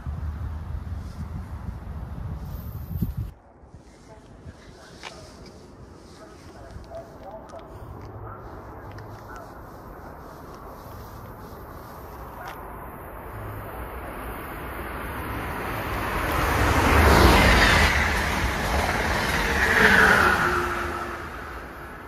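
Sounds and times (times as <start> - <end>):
vehicle passing close by: 13.2 - 22.0.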